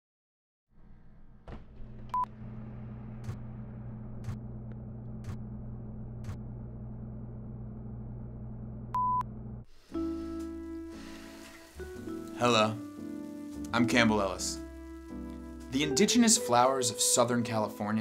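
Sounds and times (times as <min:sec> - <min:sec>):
low hum: 0:00.8 - 0:10.9
high beep: 0:09.0 - 0:09.2.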